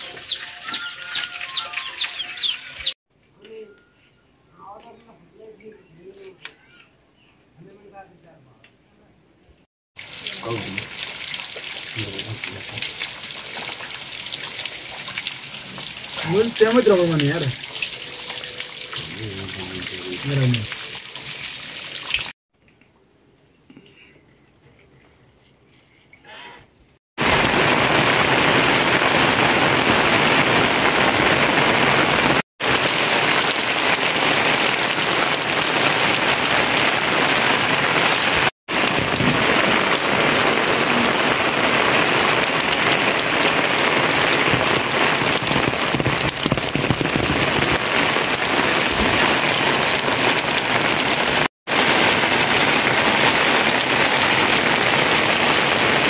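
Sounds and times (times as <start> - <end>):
rain falling on roofs: 0.0 - 3.0, 10.0 - 22.3, 27.2 - 56.0.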